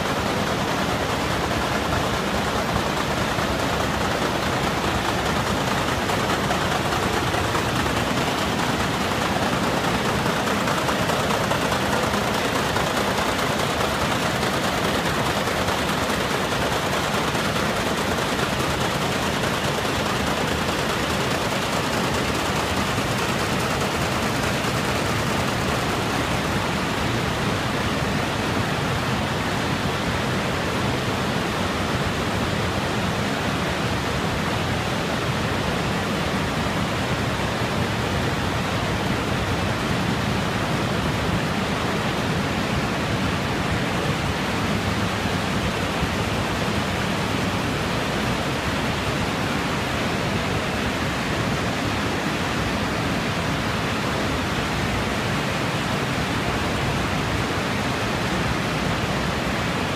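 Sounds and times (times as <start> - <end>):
braiding machines running: 0.0 - 26.9.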